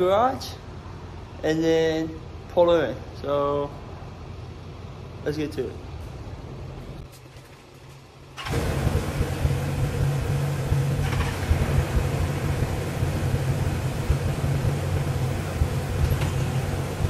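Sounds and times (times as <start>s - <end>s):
engine idling: 6.6s - 17.0s.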